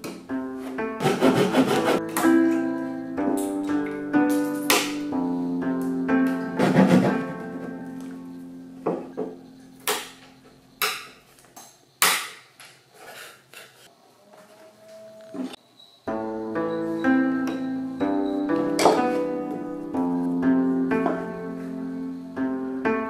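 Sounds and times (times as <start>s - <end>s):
plucked-string music: 0.0s - 9.8s, 16.1s - 23.0s.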